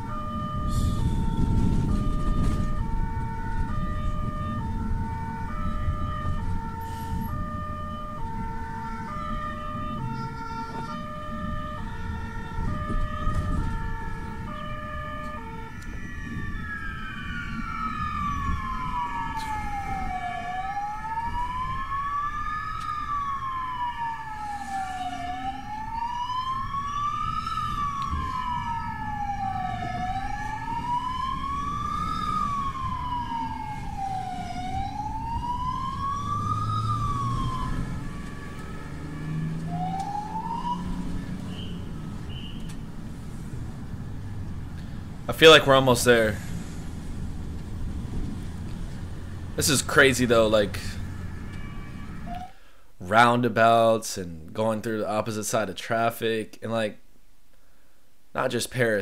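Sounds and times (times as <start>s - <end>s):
two-tone siren: 0.0s - 42.9s, 49.1s - 52.6s
wail siren: 0.0s - 52.6s
engine and road noise: 0.0s - 59.0s.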